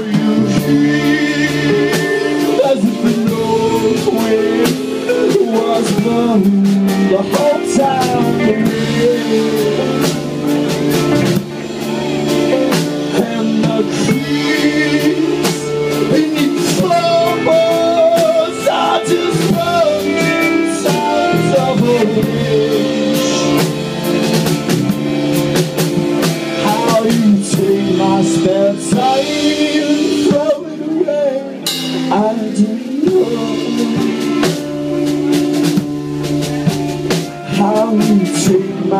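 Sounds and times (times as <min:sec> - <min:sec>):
live band playing: 0:00.0 - 0:38.9.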